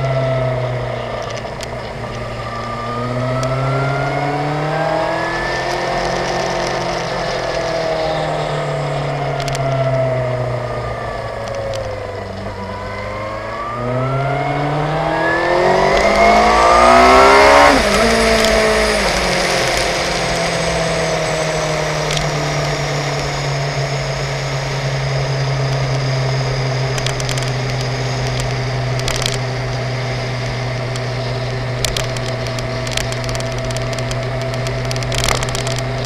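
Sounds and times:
motorcycle engine: 0.0s - 36.0s
riding wind rush: 0.2s - 27.6s.

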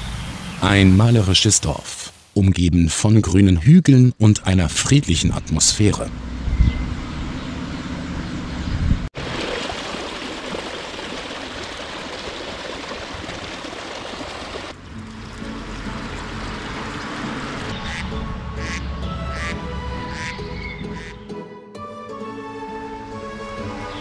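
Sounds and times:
stream flowing and splashing: 9.1s - 19.4s.

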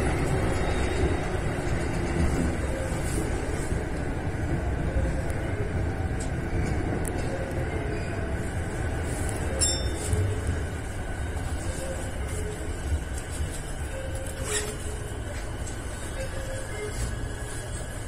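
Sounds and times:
train low rumble: 0.0s - 18.0s
high-pitched train squeal: 7.2s - 18.0s.

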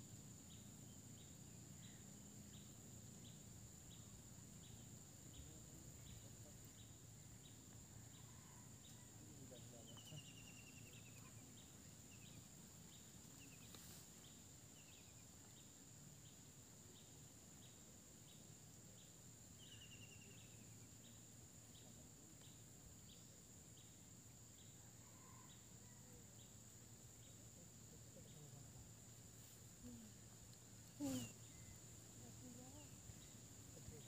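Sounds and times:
insect chirp: 0.0s - 34.0s
insect drone: 0.0s - 34.0s
rapid insect trills: 0.0s - 34.0s.

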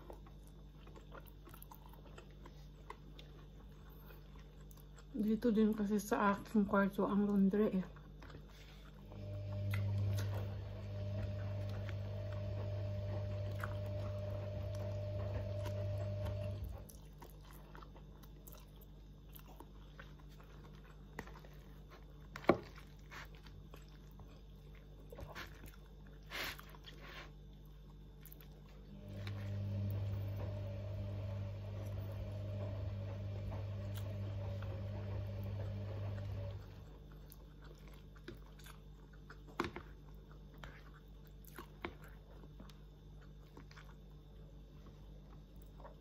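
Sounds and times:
chewing and biting: 0.0s - 5.8s, 7.3s - 29.6s, 35.5s - 46.0s
washing machine humming: 8.5s - 17.2s, 27.9s - 38.2s.

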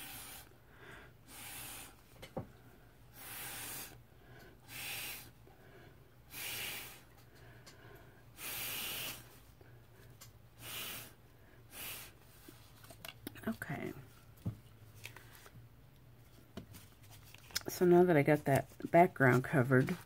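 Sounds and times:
breath blown through a straw: 0.0s - 0.5s, 1.2s - 2.0s, 3.1s - 4.0s, 4.6s - 5.4s, 6.3s - 7.1s, 8.4s - 9.4s, 10.6s - 12.2s.

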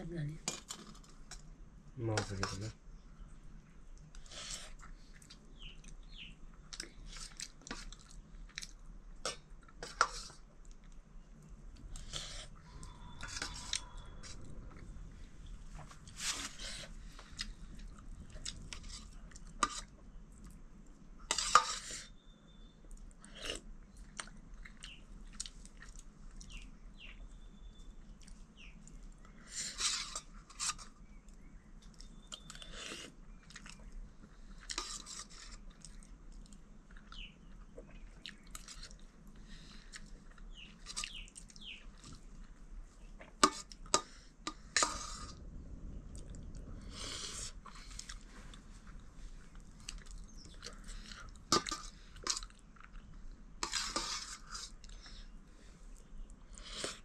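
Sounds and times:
person chewing: 6.7s - 20.6s, 22.9s - 26.6s, 46.2s - 57.0s
dishes clicking and scraping: 51.4s - 52.5s, 53.6s - 54.8s.

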